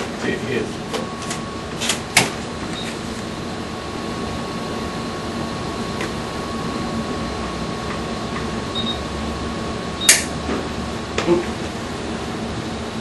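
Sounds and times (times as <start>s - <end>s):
equipment and ventilation hum: 0.0s - 13.0s
sharp click: 10.0s - 10.3s.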